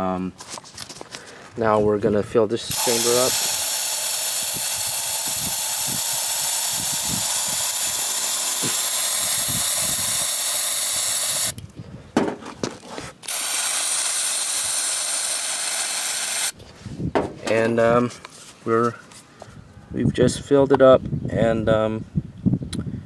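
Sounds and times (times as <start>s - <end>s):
aerosol can spraying: 2.7s - 11.6s, 13.3s - 16.6s.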